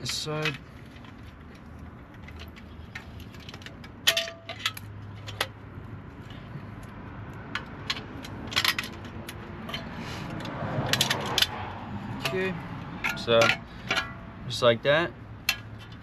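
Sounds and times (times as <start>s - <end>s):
bolts and washers clinking: 0.0s - 5.6s, 7.4s - 11.6s, 12.2s - 14.3s.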